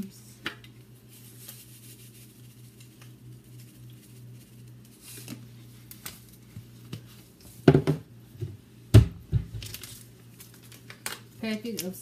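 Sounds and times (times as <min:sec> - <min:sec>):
steady low hum: 0:00.0 - 0:12.0
seasoning packet crinkling: 0:09.6 - 0:11.9.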